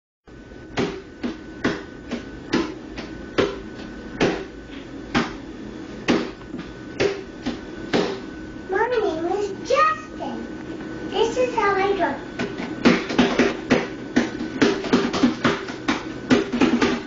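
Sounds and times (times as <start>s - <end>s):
child drumming on padded seat: 12.4s - 17.0s.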